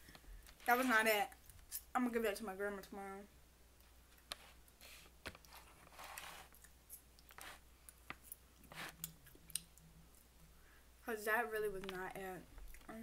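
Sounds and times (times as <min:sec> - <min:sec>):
soft chewing: 0:03.8 - 0:10.6, 0:12.5 - 0:13.0.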